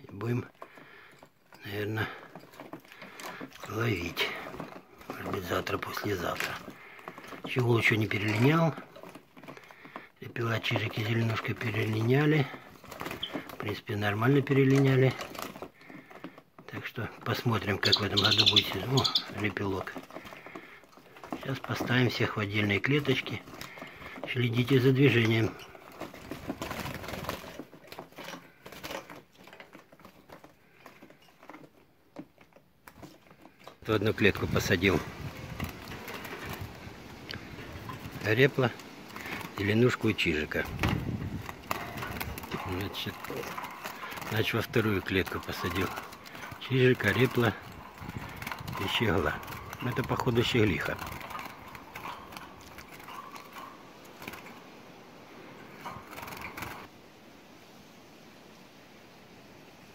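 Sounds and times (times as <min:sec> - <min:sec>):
finches rustling in cage: 0:00.0 - 0:57.0
footsteps: 0:18.3 - 0:54.6.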